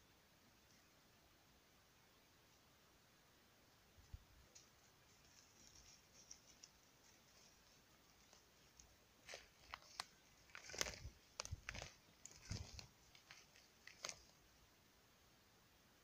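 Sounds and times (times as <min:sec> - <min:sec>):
twigs snapping: 0:08.2 - 0:14.3
footsteps crunching on twigs: 0:09.2 - 0:14.3.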